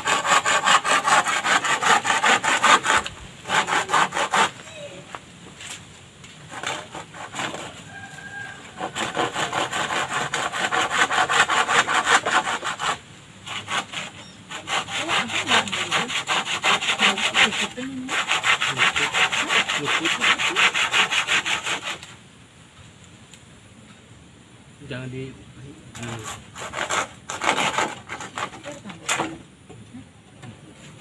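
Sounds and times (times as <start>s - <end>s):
hand saw cutting bamboo: 0.0s - 4.6s, 6.5s - 7.9s, 8.7s - 22.2s, 26.0s - 29.4s.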